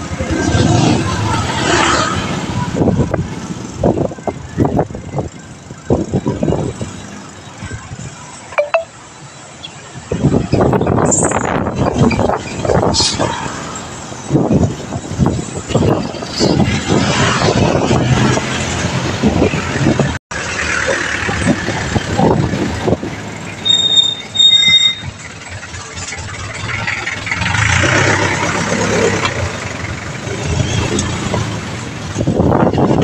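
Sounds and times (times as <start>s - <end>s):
passing vehicle engines: 0.0s - 8.6s, 9.2s - 23.6s, 25.0s - 33.0s
wind buffeting microphone: 2.2s - 8.2s, 9.9s - 20.2s, 21.2s - 23.5s, 30.4s - 33.0s.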